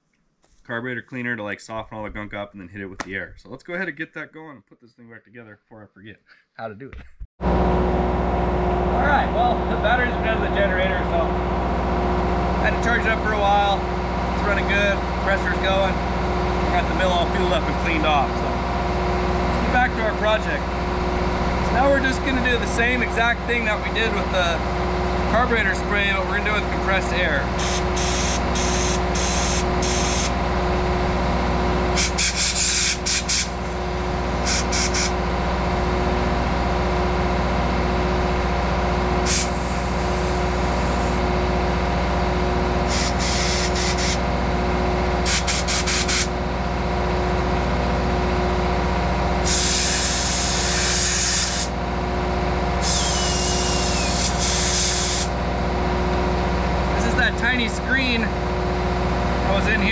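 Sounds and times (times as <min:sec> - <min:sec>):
generator running: 0:07.4 - 0:59.9
compressed air blasts: 0:27.5 - 0:30.4, 0:31.9 - 0:35.2, 0:39.2 - 0:41.2, 0:42.8 - 0:44.2, 0:45.2 - 0:46.4, 0:49.4 - 0:51.8, 0:52.8 - 0:55.4.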